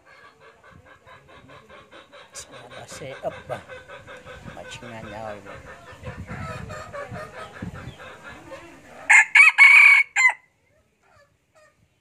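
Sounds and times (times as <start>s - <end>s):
rooster clucking: 0.0s - 10.4s
rooster crowing: 9.1s - 10.4s.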